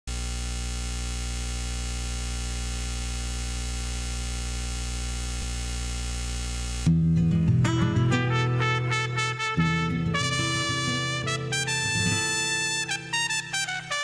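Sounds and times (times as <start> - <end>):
electrical mains hum: 0.1 - 6.9
hiss and static: 0.1 - 6.9.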